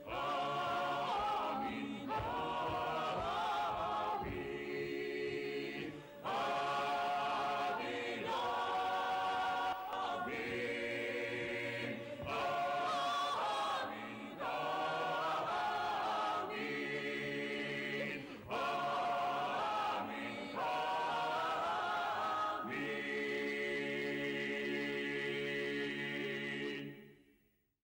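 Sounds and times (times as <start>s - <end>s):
choir chanting: 0.0s - 27.3s.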